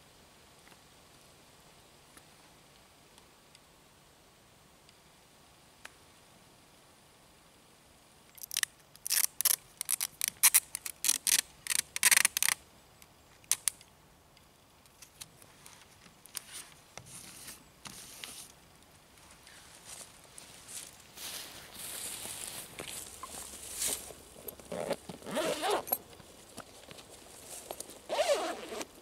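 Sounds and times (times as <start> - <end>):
adhesive tape ripping off roll: 8.4 - 12.6.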